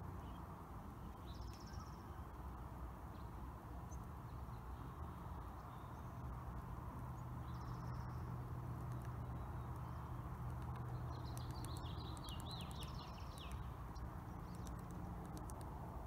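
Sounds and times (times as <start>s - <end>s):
street traffic rumble: 0.0s - 16.0s
faint bird chirps: 1.1s - 2.4s, 7.2s - 15.6s.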